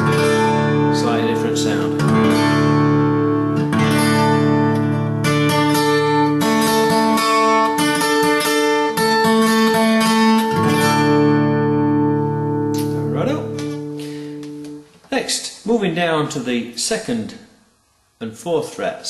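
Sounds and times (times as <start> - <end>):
acoustic guitar strumming: 0.0 - 14.9.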